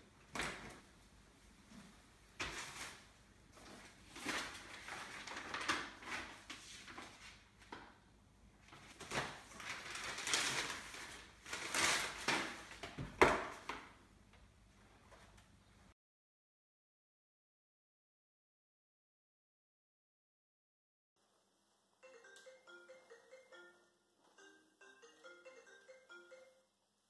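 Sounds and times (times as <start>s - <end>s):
paper rustling: 2.4s - 7.8s, 8.6s - 13.8s.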